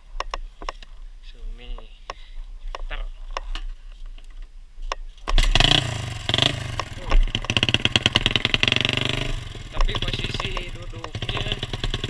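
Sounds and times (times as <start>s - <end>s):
dirt bike engine revving: 5.3s - 12.0s.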